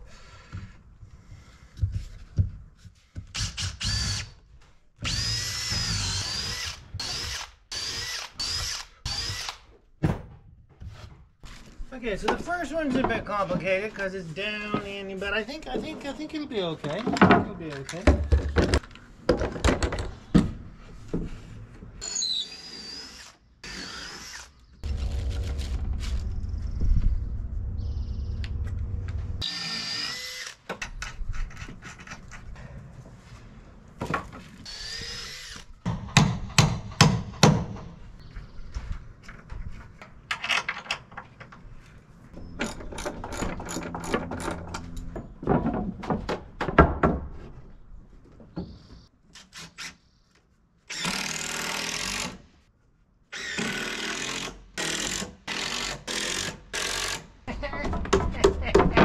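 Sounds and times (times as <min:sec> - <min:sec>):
cordless drill driving screws: 0:03.4 - 0:04.4, 0:05.0 - 0:09.6, 0:29.4 - 0:30.6, 0:34.7 - 0:35.7, 0:50.9 - 0:52.4, 0:53.3 - 0:57.2
wood and tools knocking: 0:16.9 - 0:21.3, 0:42.4 - 0:47.6, 0:57.5 - 0:59.0.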